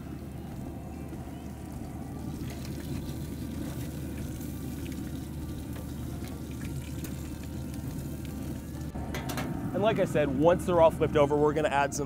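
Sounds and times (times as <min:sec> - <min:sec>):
lobsters sizzling on a grill: 0:01.3 - 0:10.5
low rumble: 0:07.5 - 0:11.3
metal tongs on grill: 0:09.1 - 0:09.6.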